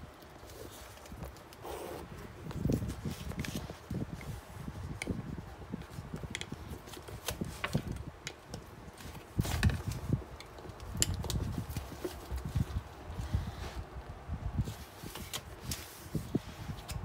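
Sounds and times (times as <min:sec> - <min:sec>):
handbag rustling: 0:00.0 - 0:03.9.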